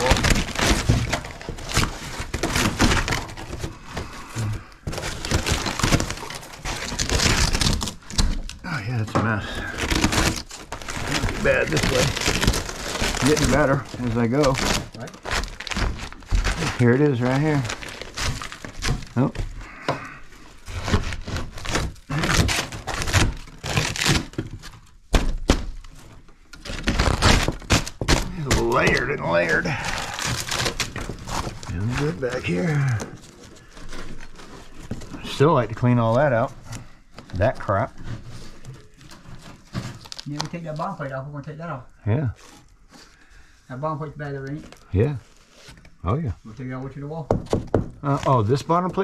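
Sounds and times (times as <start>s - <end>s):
wooden knocks and scraping: 0.0s - 29.4s, 47.2s - 48.0s
wood paneling ripped off wall: 0.0s - 41.1s.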